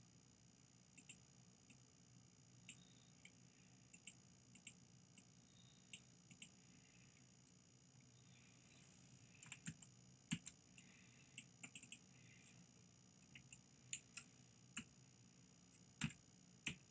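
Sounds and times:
faint steady low hum: 0:00.0 - 0:16.9
computer mouse clicking: 0:01.0 - 0:01.8, 0:02.6 - 0:05.3, 0:05.9 - 0:06.6, 0:09.4 - 0:12.1, 0:13.2 - 0:14.9, 0:15.7 - 0:16.9.

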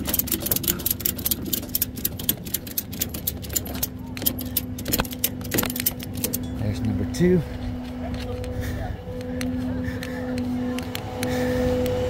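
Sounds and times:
ratchet strap clicking: 0:00.0 - 0:06.5
steady low hum: 0:00.0 - 0:12.0.

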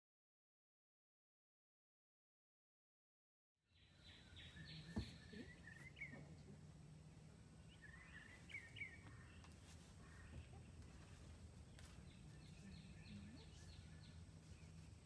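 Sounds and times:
faint birds chirping: 0:03.7 - 0:15.0
low steady hum: 0:03.8 - 0:15.0.

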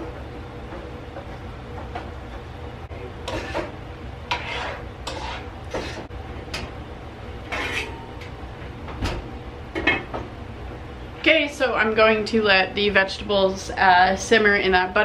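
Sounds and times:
steady low hum: 0:00.0 - 0:15.0
utensil stirring vegetables in skillet: 0:03.3 - 0:06.1.

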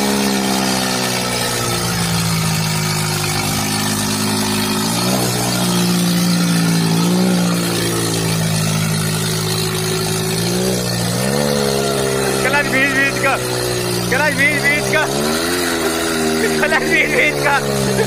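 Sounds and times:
tractor engines revving under load: 0:00.0 - 0:18.0.

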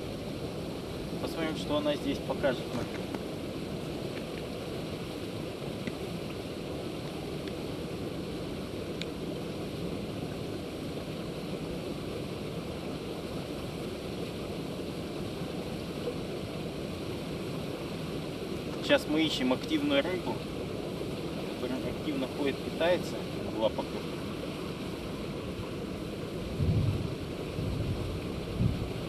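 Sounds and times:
wind buffeting microphone: 0:26.3 - 0:29.0.

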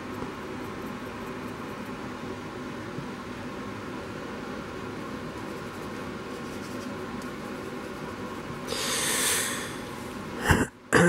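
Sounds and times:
low room hum and hiss: 0:00.0 - 0:11.0
paintbrush scratching on plastic: 0:05.2 - 0:08.7
rasping hiss: 0:08.6 - 0:10.0.

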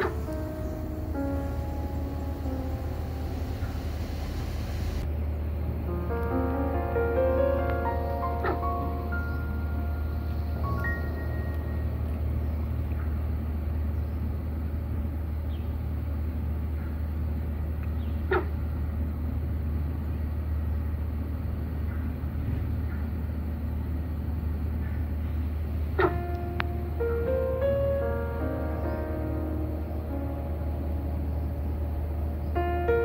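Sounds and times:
even hiss: 0:00.0 - 0:05.1
low rumble: 0:00.0 - 0:18.0, 0:23.6 - 0:33.0.

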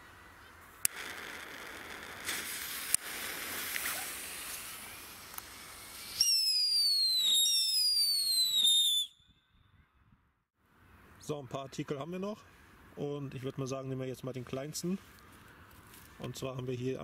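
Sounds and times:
fuse hissing and sputtering: 0:00.8 - 0:06.2
falling firework whistles: 0:00.9 - 0:09.2.

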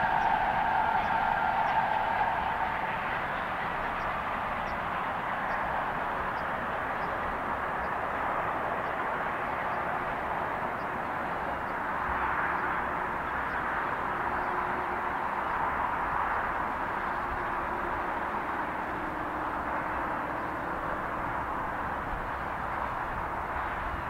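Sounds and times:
distant steam locomotive exhaust roar: 0:00.0 - 0:24.0.

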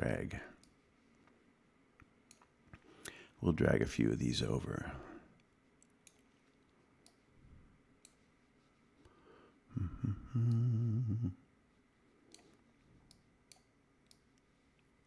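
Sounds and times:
man humming: 0:09.7 - 0:11.5
computer mouse clicks: 0:12.3 - 0:14.5.

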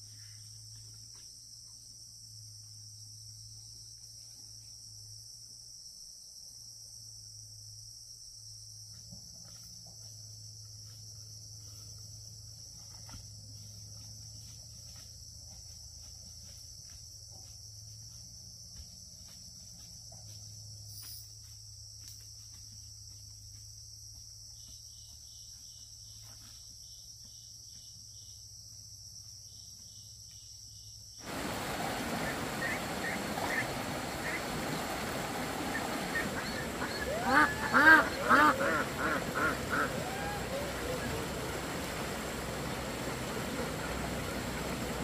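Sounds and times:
insects chirring: 0:00.0 - 0:45.0
rapidly pulsing insect call: 0:00.0 - 0:45.0
faint low hum: 0:31.3 - 0:45.0.

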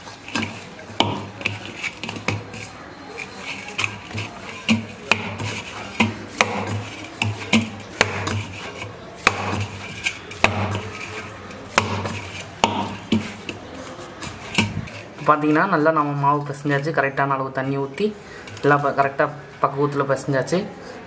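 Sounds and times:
dough rubbing against metal bowl: 0:00.0 - 0:17.0
dough knocking against bowl: 0:00.3 - 0:02.7, 0:03.5 - 0:13.6.

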